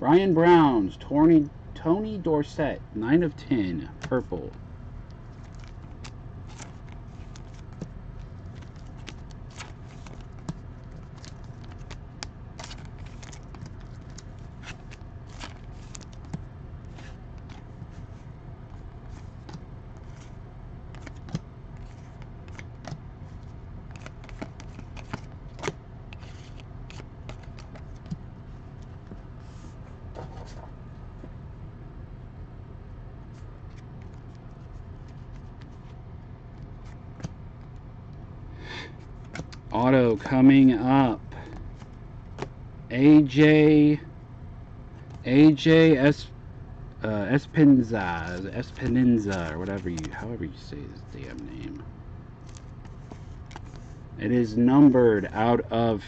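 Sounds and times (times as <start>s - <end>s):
steady low hum: 0.0s - 56.0s
trading cards clicking and scraping: 5.1s - 30.8s, 33.3s - 36.0s, 38.9s - 39.7s, 47.4s - 51.8s, 52.4s - 54.0s.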